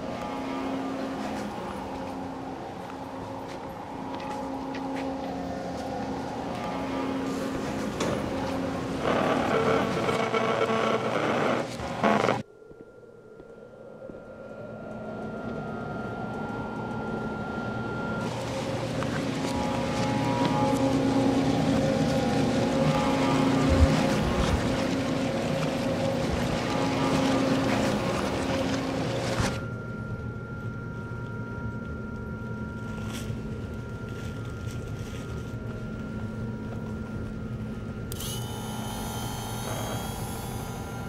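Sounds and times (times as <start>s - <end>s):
engine-like drone with held tones: 0.0s - 41.0s
high shrill tones: 38.1s - 41.0s.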